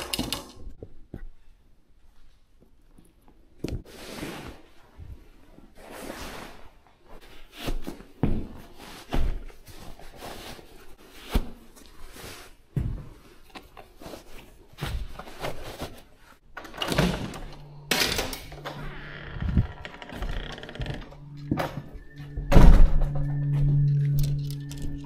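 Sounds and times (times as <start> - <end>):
low steady hum: 17.1 - 25.0.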